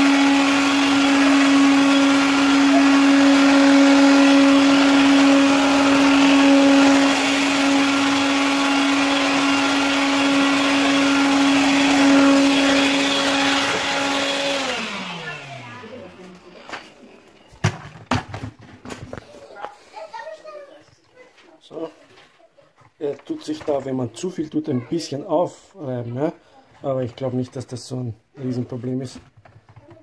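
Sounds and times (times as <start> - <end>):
stick vacuum running: 0.0 - 16.8.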